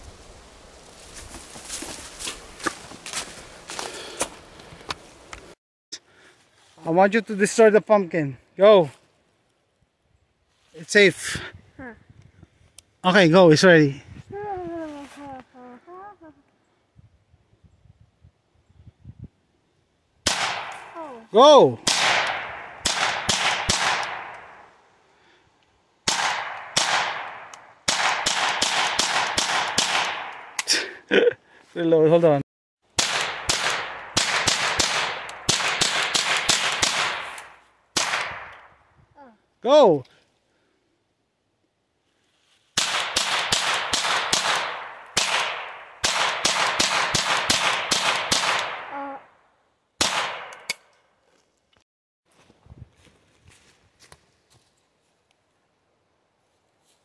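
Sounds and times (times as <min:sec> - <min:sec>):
pistol shots: 0:20.3 - 0:20.9, 0:21.8 - 0:24.6, 0:26.1 - 0:30.6, 0:33.0 - 0:38.7, 0:42.8 - 0:48.9, 0:50.0 - 0:50.8.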